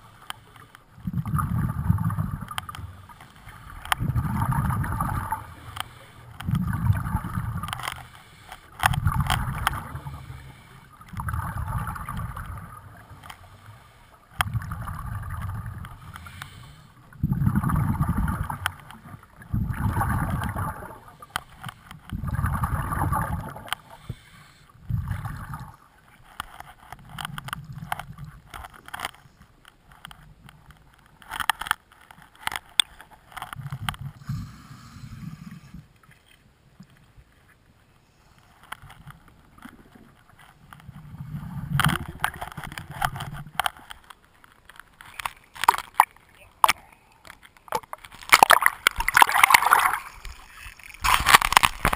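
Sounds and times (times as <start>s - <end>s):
underwater exhaust bubbles gurgling: 0.9s - 25.8s.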